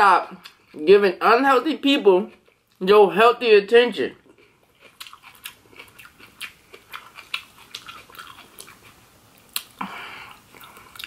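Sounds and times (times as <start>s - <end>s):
chewing raw vegetables: 4.2s - 11.0s.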